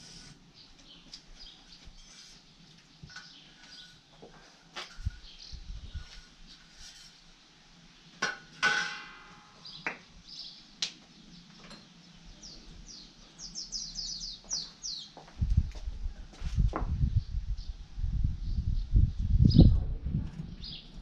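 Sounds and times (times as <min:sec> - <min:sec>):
metal pipe clanking against brick: 0:08.2 - 0:09.6
bird chirping: 0:09.6 - 0:15.2.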